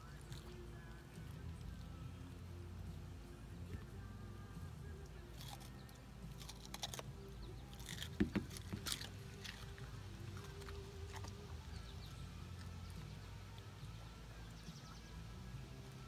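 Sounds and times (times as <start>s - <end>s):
dog crunching cucumber: 0.0s - 2.5s, 5.0s - 13.9s.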